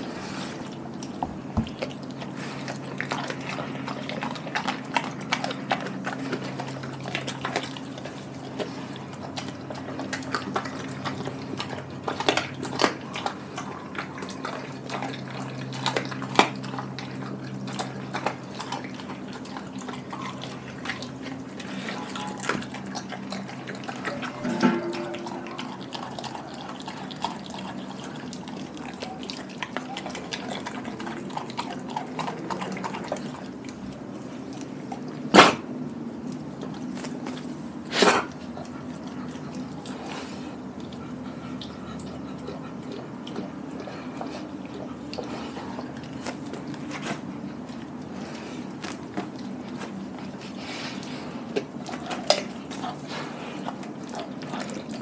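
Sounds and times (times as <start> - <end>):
dog chewing wetly: 0.0 - 55.0.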